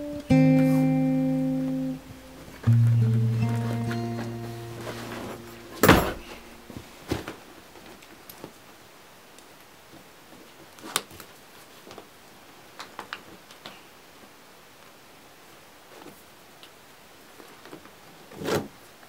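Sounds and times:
rucksack thumping on wooden floor: 5.8s - 6.4s.

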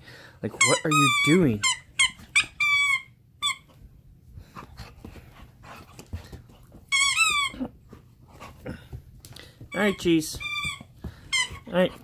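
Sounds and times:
squeaky dog toy squeaking: 0.5s - 3.7s, 6.9s - 7.7s, 9.7s - 12.0s.

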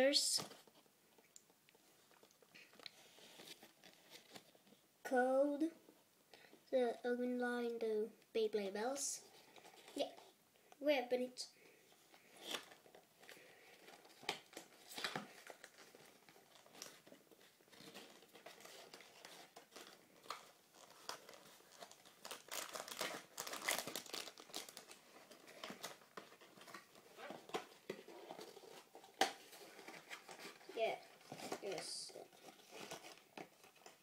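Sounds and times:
packaging crinkling and tearing: 12.1s - 34.0s.

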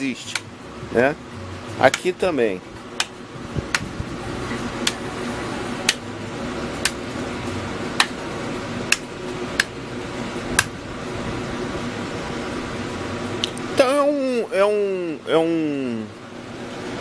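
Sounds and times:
steady hum: 0.0s - 17.0s
toggle switches clicking: 0.3s - 0.5s, 1.9s - 2.1s, 5.8s - 6.0s.

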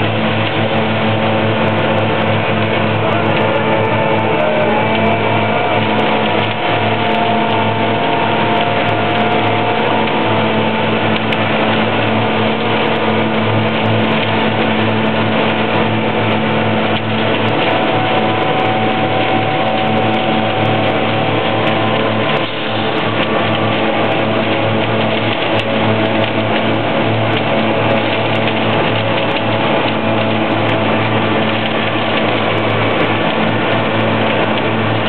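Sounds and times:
heavy machinery engines droning: 0.0s - 35.0s.

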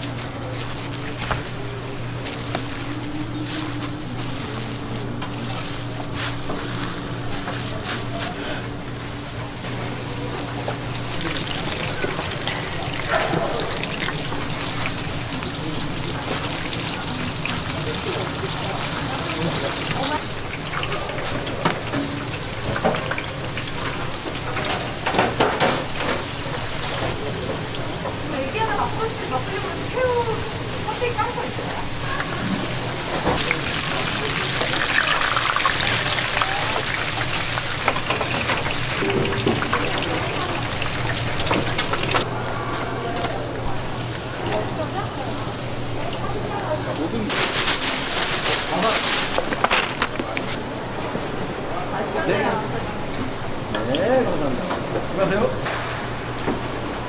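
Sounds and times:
hot oil sizzling and crackling: 8.8s - 42.3s, 43.8s - 50.6s.

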